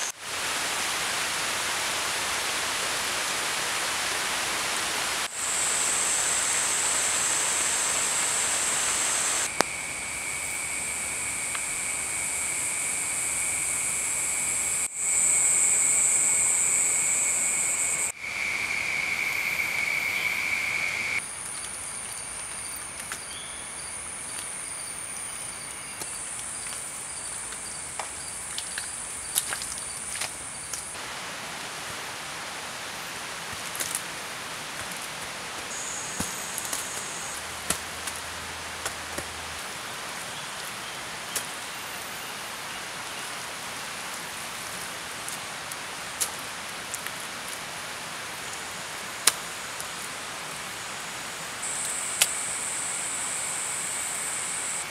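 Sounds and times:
steady forest hiss: 0.0s - 54.9s
insects calling: 5.2s - 31.0s, 35.6s - 39.0s, 47.9s - 54.9s.

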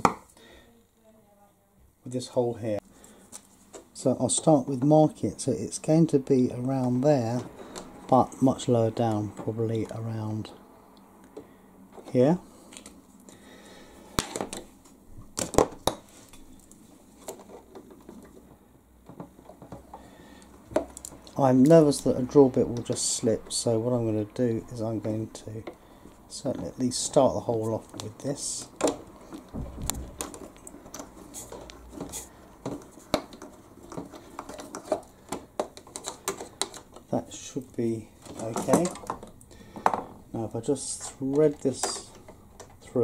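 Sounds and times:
hand tool scraping plastic: 26.4s - 37.3s, 38.1s - 40.1s.

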